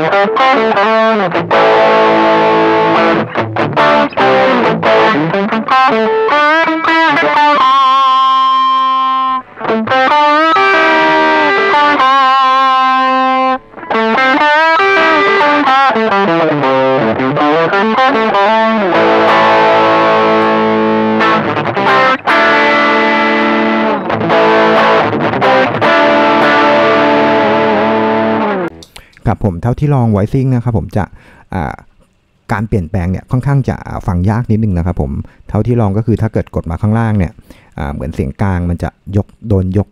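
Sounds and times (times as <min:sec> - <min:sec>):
distorted electric guitar: 0:00.0 - 0:29.1.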